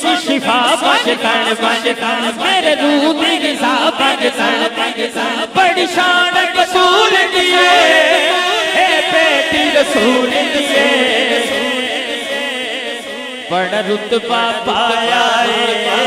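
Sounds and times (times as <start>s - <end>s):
men singing unaccompanied: 0.0s - 16.0s.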